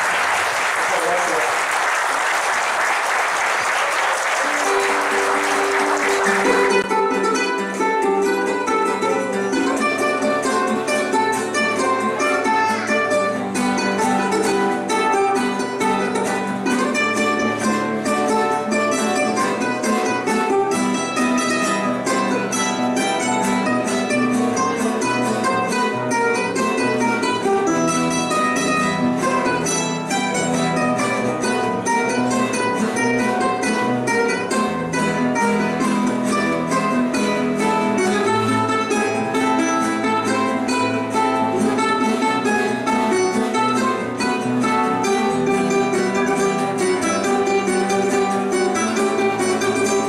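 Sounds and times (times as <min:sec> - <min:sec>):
applause: 0:00.0 - 0:06.9
string ensemble held note: 0:00.0 - 0:06.9
acoustic guitars strumming: 0:00.0 - 0:50.0
small high-pitched strummed instrument: 0:04.3 - 0:50.0.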